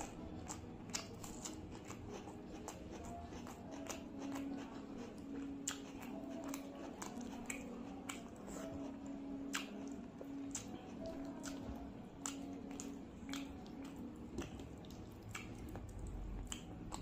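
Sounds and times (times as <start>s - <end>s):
chewing mouth clicks and smacks: 0.0s - 8.8s, 9.4s - 17.0s
fingers squelching food: 0.0s - 17.0s.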